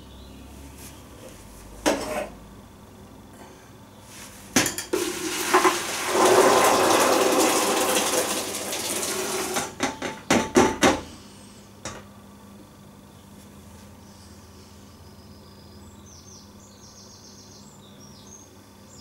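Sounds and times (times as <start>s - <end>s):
water pouring and splashing: 4.9s - 9.8s
sharp knocks of pan: 9.6s - 11.0s.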